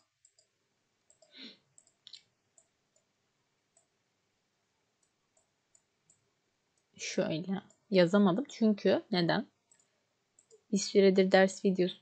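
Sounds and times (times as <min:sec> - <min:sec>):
computer mouse clicking: 0:00.0 - 0:03.1, 0:03.7 - 0:03.9, 0:05.0 - 0:06.2, 0:09.7 - 0:10.6.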